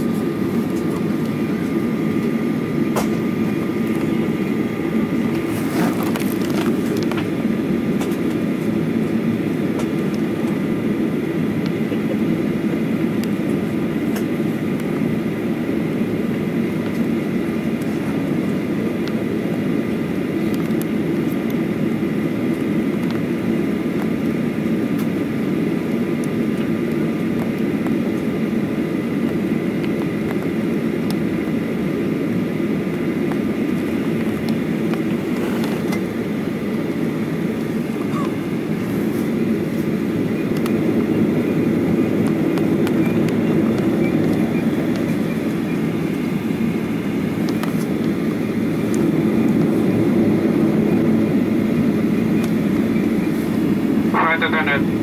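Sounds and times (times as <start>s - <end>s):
faint steady whine: 0.0s - 55.0s
jet engine cabin rumble: 0.0s - 55.0s.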